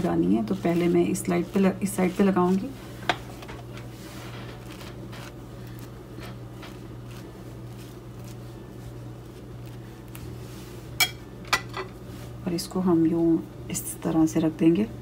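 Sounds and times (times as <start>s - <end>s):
knife scraping bread: 0.0s - 10.8s
steady low hum: 0.0s - 15.0s.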